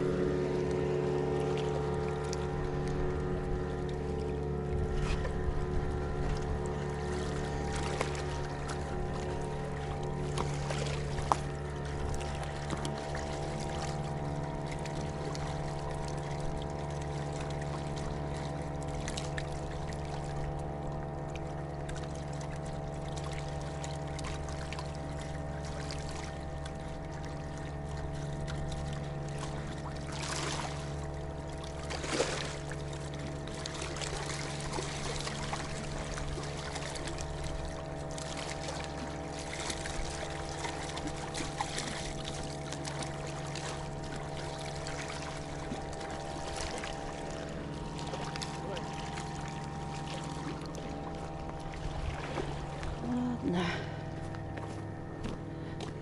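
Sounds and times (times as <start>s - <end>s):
outboard motor running: 0.0s - 56.0s
water splashing and pouring: 28.5s - 53.3s.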